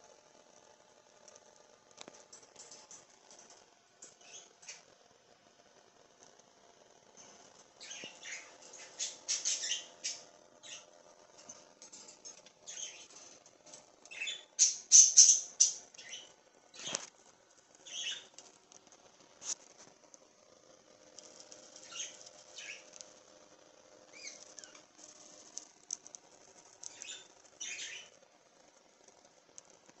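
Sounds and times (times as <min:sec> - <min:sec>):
budgerigars chirping: 0:07.8 - 0:10.9, 0:14.1 - 0:16.2, 0:17.9 - 0:18.2, 0:21.8 - 0:22.8, 0:26.9 - 0:28.1.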